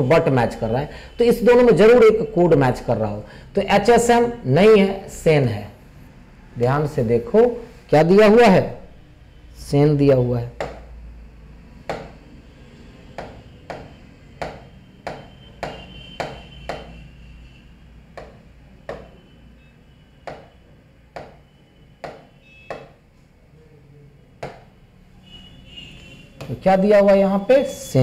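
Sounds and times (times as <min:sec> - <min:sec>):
taps on touchscreen: 0:10.6 - 0:10.9, 0:11.8 - 0:12.2, 0:13.2 - 0:17.0, 0:18.2 - 0:19.2, 0:20.2 - 0:20.6, 0:21.2 - 0:21.4, 0:22.0 - 0:23.0, 0:24.4 - 0:24.7.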